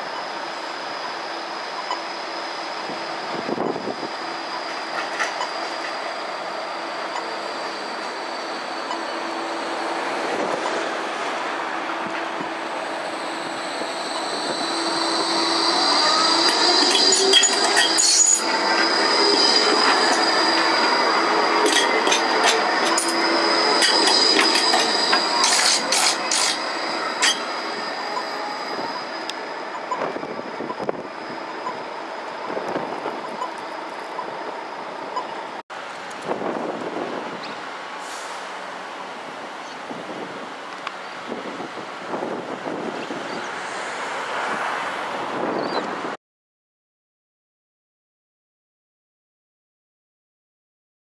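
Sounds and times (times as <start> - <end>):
tram wheels squealing: 0.0 - 35.6, 42.1 - 46.1.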